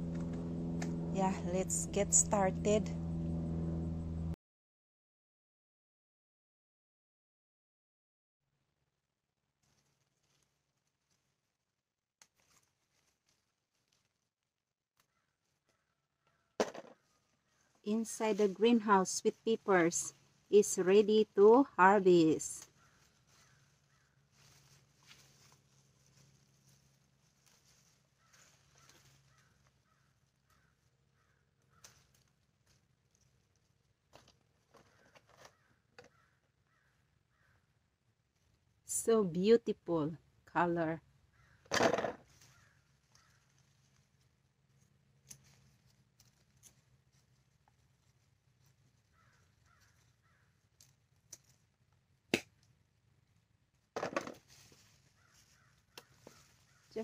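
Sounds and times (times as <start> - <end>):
leaves rustling: 9.6 - 11.4, 12.2 - 14.3, 22.0 - 34.4, 42.2 - 51.6, 54.4 - 57.0
faint bird calls: 22.7 - 24.3, 28.2 - 32.1, 34.8 - 37.7, 42.4 - 43.6, 49.1 - 50.6, 55.1 - 57.0.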